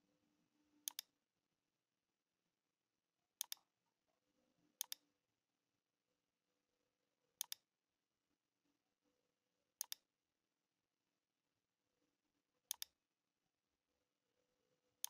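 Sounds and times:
computer mouse button clicking: 0:00.9 - 0:01.1, 0:03.4 - 0:03.6, 0:04.8 - 0:05.0, 0:07.4 - 0:07.6, 0:09.8 - 0:10.0, 0:12.7 - 0:13.0.

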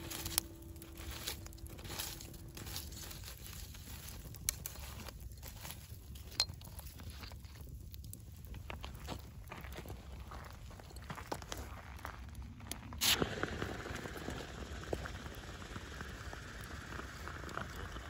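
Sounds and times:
campfire crackling: 0:00.0 - 0:18.0
low steady rumble: 0:00.0 - 0:18.0
sharp pops of fire: 0:13.0 - 0:16.6.

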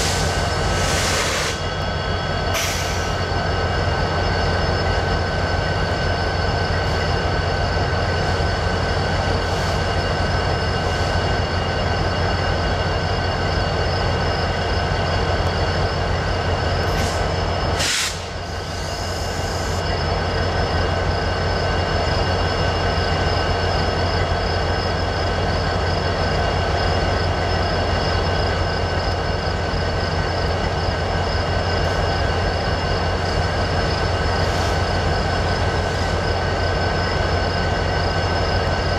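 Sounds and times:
high-pitched whine: 0:00.0 - 0:38.9
short hiss: 0:17.8 - 0:18.3.

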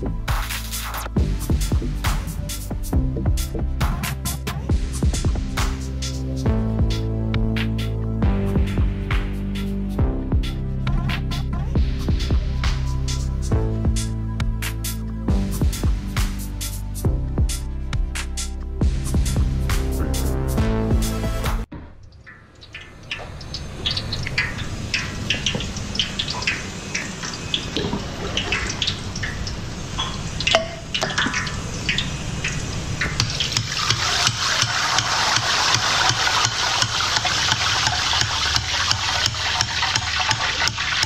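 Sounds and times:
batter frying in hot oil: 0:22.1 - 0:41.0.

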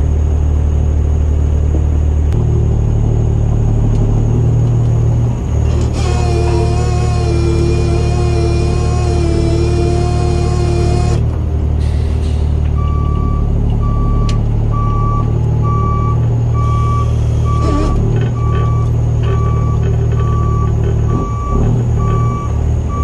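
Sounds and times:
diesel truck engine running: 0:00.0 - 0:23.0
backup alarm beeping: 0:12.8 - 0:23.0.

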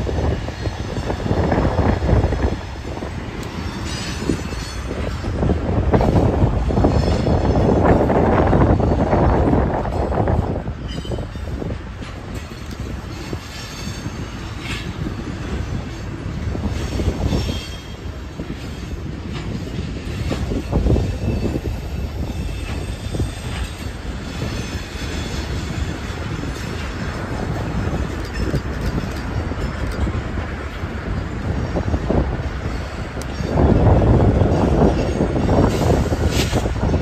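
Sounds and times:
diesel locomotives rumbling: 0:00.0 - 0:37.0
train wheels clacking over rail joints: 0:00.0 - 0:37.0
high-pitched wheel squeal: 0:16.7 - 0:19.0, 0:19.7 - 0:26.1.

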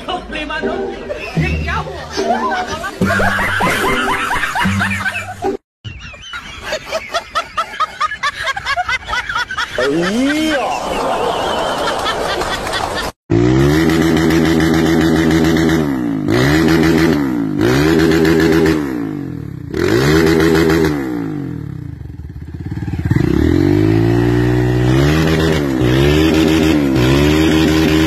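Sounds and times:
dirt bike engine revving: 0:13.3 - 0:28.0.

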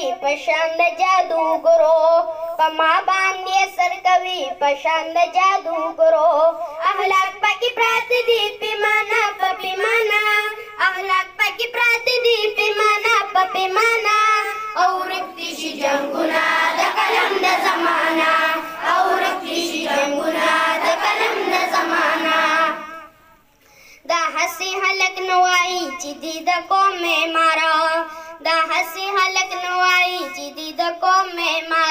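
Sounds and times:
boys singing: 0:08.0 - 0:23.2.

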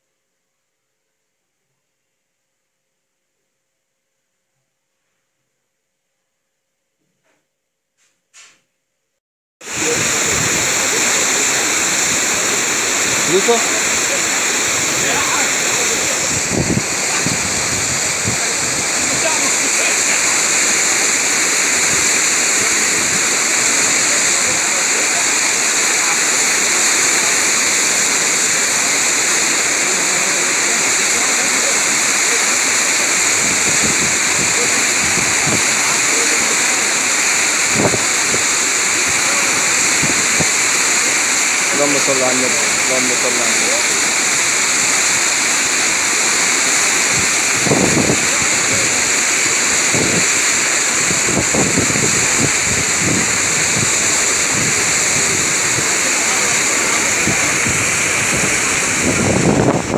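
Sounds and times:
wind and sea rushing: 0:09.6 - 0:59.9.

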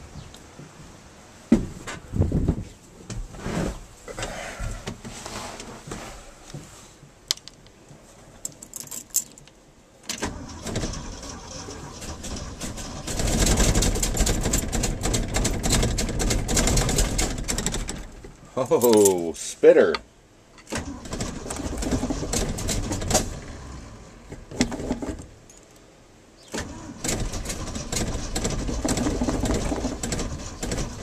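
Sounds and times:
keys jangling: 0:08.5 - 0:09.5
starter cranking engine: 0:10.2 - 0:18.2, 0:20.7 - 0:23.8, 0:26.5 - 0:31.0
things knocking about: 0:13.0 - 0:18.4, 0:27.0 - 0:31.0.

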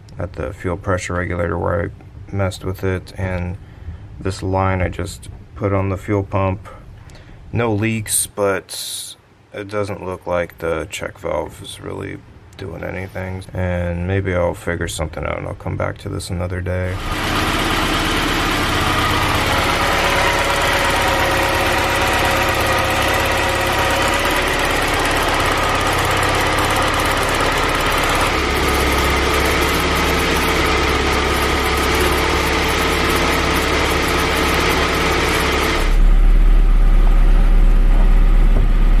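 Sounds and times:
car engine idling: 0:17.0 - 0:39.0.

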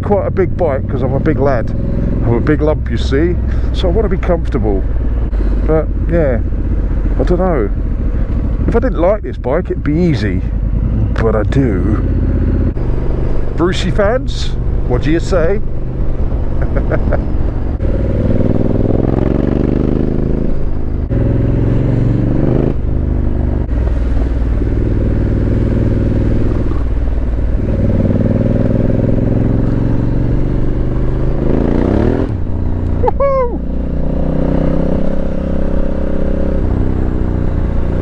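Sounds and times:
motorcycle engine shifting gears: 0:00.0 - 0:38.0.

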